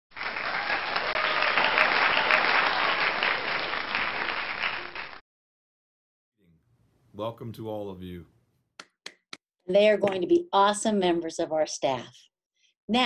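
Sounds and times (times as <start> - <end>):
crowd applause: 0.1 - 5.2.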